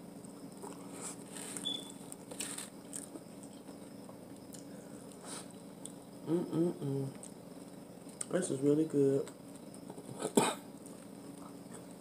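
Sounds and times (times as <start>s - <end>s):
low steady hum: 0.0s - 12.0s
person chewing and mouth smacking: 2.9s - 3.7s.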